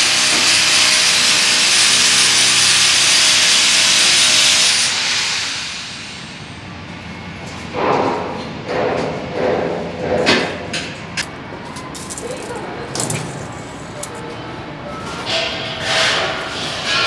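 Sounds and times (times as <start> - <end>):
power tool motor whine: 0.0 - 5.1.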